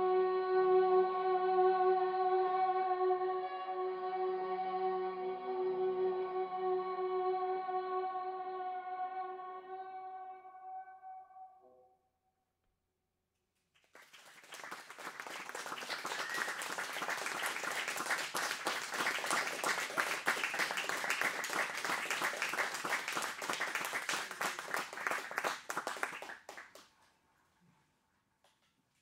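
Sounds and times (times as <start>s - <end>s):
audience applauding: 13.8s - 26.9s.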